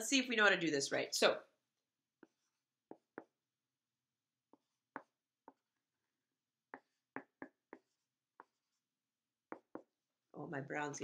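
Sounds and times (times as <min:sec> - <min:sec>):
marker writing on paper: 0:02.1 - 0:03.6, 0:04.4 - 0:10.0.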